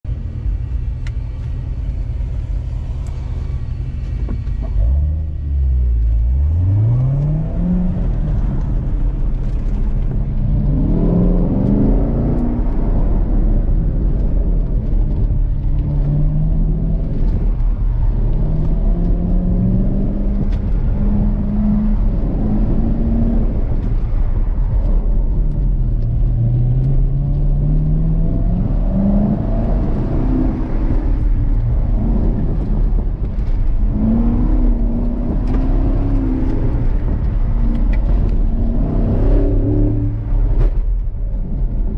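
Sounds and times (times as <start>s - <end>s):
car engine revving under acceleration: 0.4s - 41.9s.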